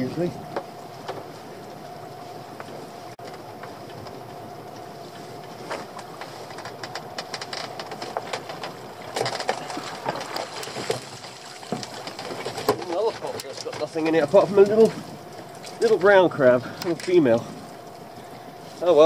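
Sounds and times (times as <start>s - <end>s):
outboard motor idling: 0.0s - 19.0s.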